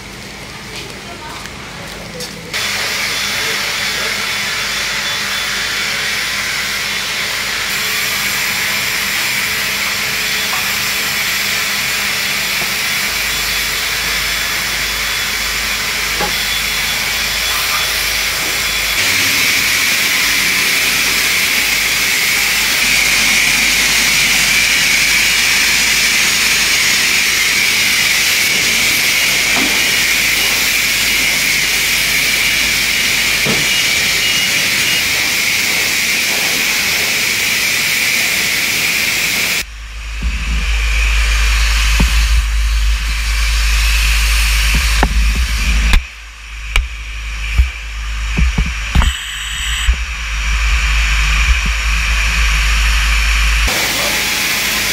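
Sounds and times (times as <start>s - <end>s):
pressure washer spray hiss: 7.7s - 39.6s.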